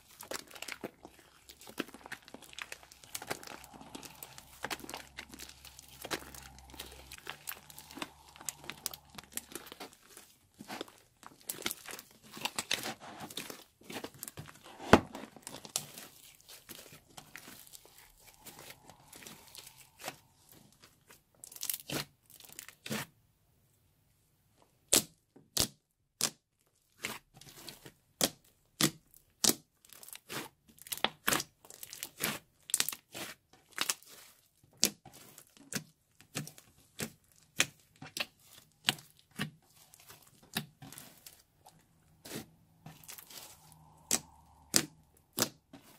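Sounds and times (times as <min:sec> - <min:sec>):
slime crackling and popping: 0:00.0 - 0:14.6, 0:28.2 - 0:45.9.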